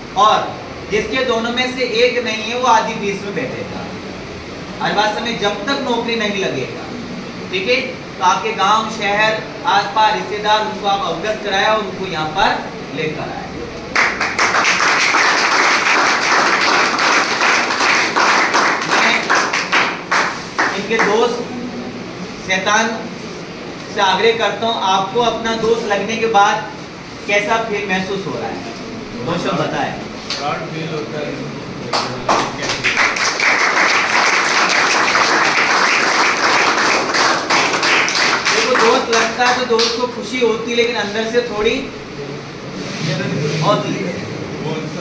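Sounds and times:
crowd applauding: 13.9s - 21.2s, 31.9s - 40.0s.

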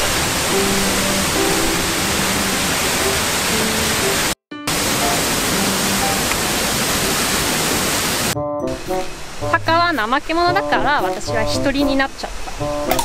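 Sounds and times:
waterfall roaring: 0.0s - 13.0s
soft background music: 8.4s - 13.0s.

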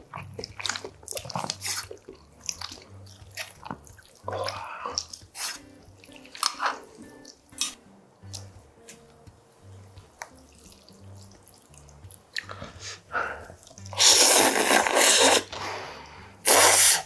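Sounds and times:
man slurping noodles: 12.4s - 17.0s.

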